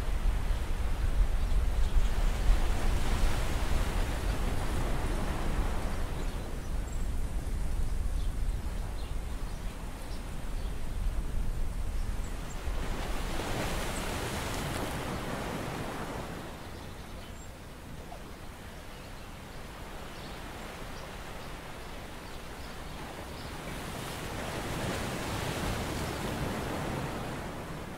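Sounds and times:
wind rumbling on microphone: 0:00.0 - 0:17.1.

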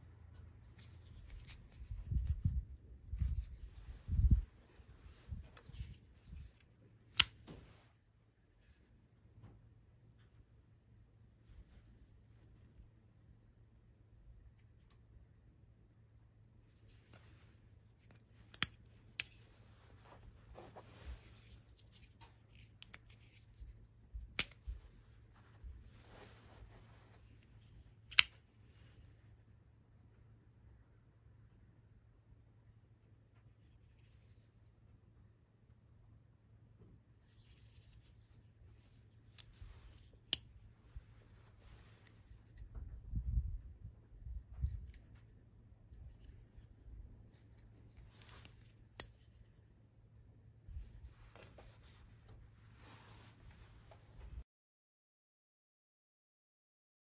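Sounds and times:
soft rubbing and handling: 0:00.1 - 0:13.4, 0:16.6 - 0:29.8, 0:33.2 - 0:35.3, 0:36.8 - 0:43.2, 0:44.0 - 0:54.4
folding knife blades clicking: 0:07.1 - 0:07.4, 0:18.1 - 0:19.4, 0:24.3 - 0:24.7, 0:28.1 - 0:28.4.

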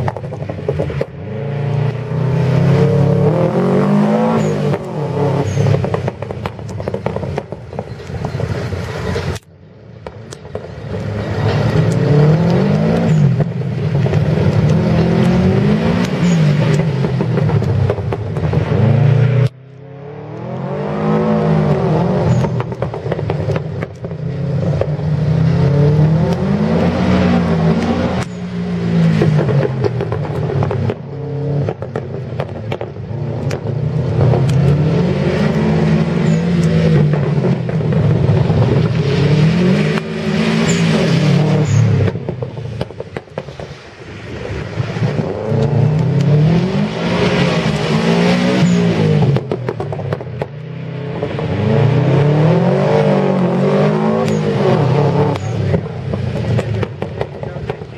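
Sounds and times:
car engine revving hard: 0:01.2 - 0:06.3, 0:11.0 - 0:23.6, 0:24.4 - 0:32.0, 0:33.0 - 0:42.2, 0:45.0 - 0:49.6, 0:50.8 - 0:57.9.

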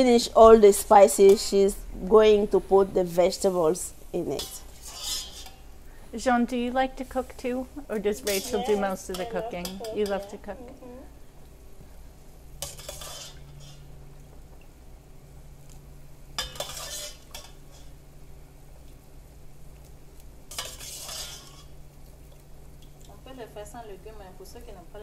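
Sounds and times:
pot bubbling: 0:00.0 - 0:24.4
metal ladle scooping from pot: 0:04.4 - 0:05.7, 0:12.6 - 0:13.9, 0:16.4 - 0:17.9, 0:20.5 - 0:21.8.

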